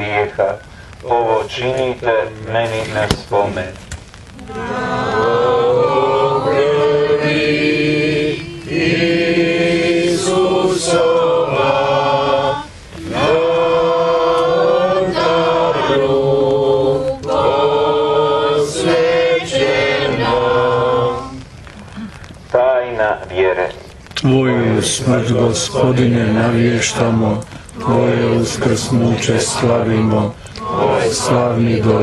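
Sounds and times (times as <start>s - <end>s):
congregation singing a hymn: 4.4s - 21.4s, 24.2s - 32.0s.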